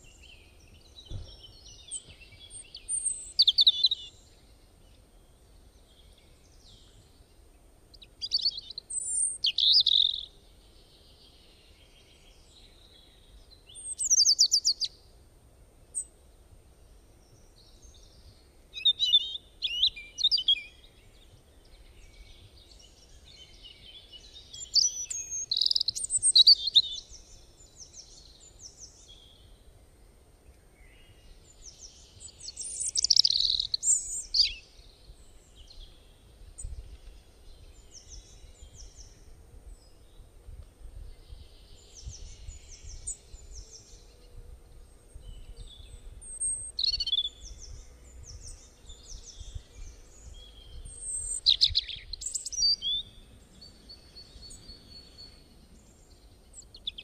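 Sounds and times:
birds chirping and whistling: 0.1 - 4.2, 8.2 - 10.3, 13.7 - 14.9, 18.8 - 21.2, 22.0 - 29.3, 31.5 - 34.6, 45.2 - 55.4.

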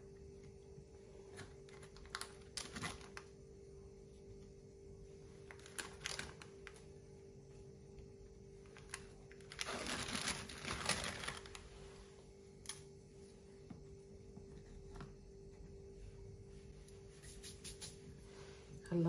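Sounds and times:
faint steady hum: 0.0 - 19.0
biscuits clicking and snapping: 1.4 - 3.4
crinkling rustle: 5.4 - 6.8, 8.6 - 12.0.

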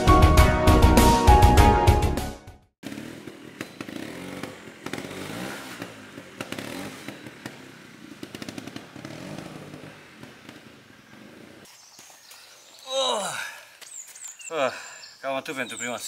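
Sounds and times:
motorcycle engine revving: 2.8 - 11.7.

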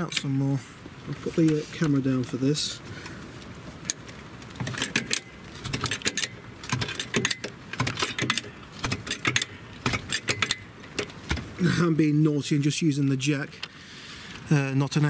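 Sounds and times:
trolley jack clicks and clanks: 3.9 - 11.4.

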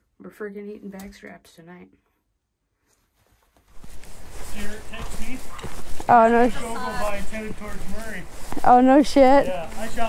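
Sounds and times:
rustling against microphone: 2.9 - 10.0.

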